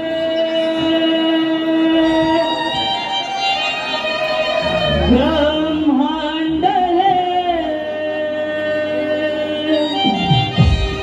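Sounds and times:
held instrumental drone note: 1.9s - 6.8s.

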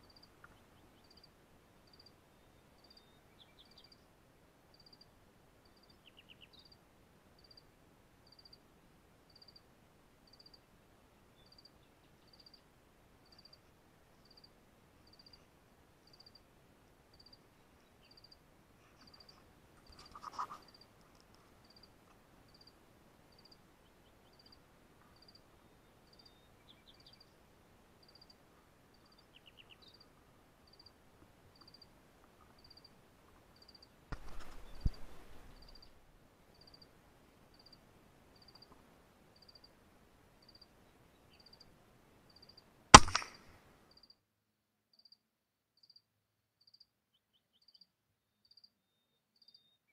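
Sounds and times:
insect chirping: 0.0s - 1.3s, 1.9s - 2.2s, 7.4s - 8.6s, 9.3s - 9.6s, 10.3s - 10.6s, 16.0s - 16.5s, 17.1s - 17.4s, 18.0s - 18.4s, 21.6s - 21.9s, 22.5s - 23.6s, 25.2s - 25.4s, 26.1s - 27.3s, 28.0s - 30.1s, 30.7s - 31.0s, 31.6s - 31.9s, 32.6s - 32.9s, 33.6s - 33.9s, 34.5s - 36.9s, 37.5s - 37.8s, 39.4s - 39.7s, 40.4s - 40.7s.

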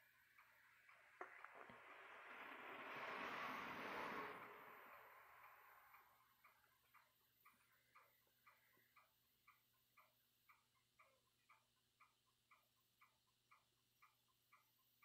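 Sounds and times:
soft rushing noise: 0.0s - 7.9s
faint clock-like ticking: 0.0s - 15.0s.

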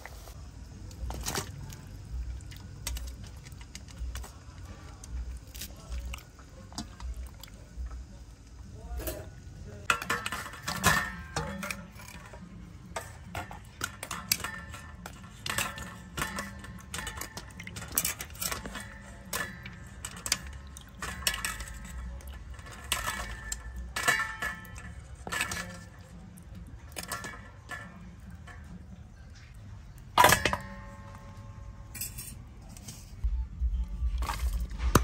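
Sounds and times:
dishes and utensils clinking: 8.8s - 33.3s.

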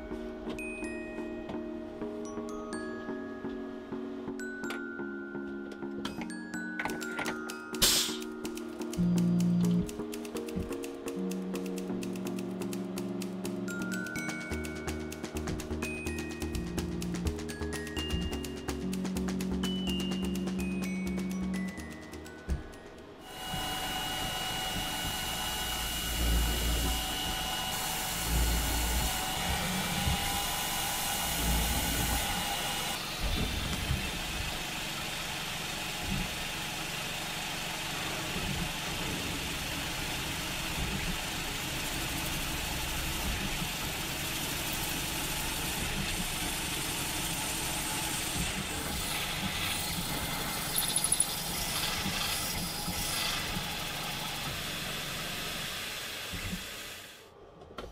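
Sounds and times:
machine tool whining: 23.2s - 36.4s.

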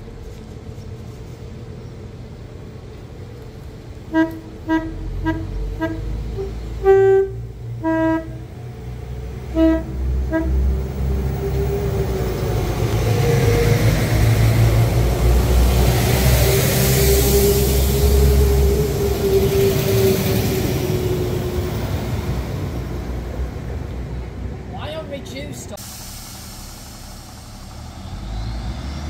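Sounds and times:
passing train rumble: 0.0s - 29.0s
locomotive horn short toots: 4.1s - 8.6s, 9.4s - 10.8s.

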